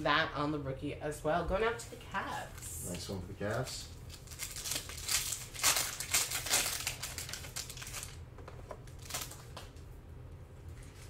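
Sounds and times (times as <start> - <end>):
foil wrapper crinkling: 2.8 - 9.8.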